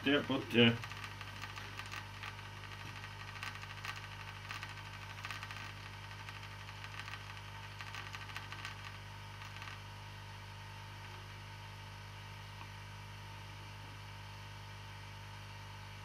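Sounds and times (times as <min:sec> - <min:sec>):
air pump humming with hiss: 0:00.0 - 0:12.8.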